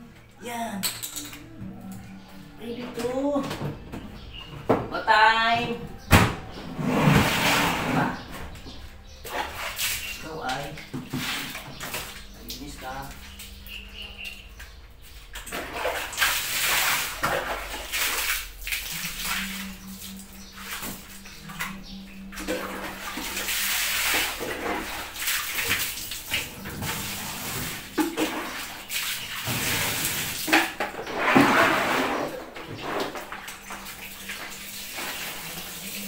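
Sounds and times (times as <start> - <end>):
water splashing in bucket: 6.8 - 8.3, 9.2 - 36.0.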